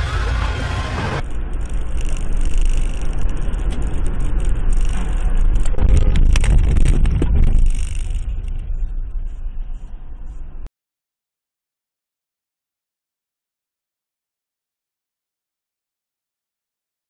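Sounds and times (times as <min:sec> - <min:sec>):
car engine and tyres rumbling: 0:00.0 - 0:10.7.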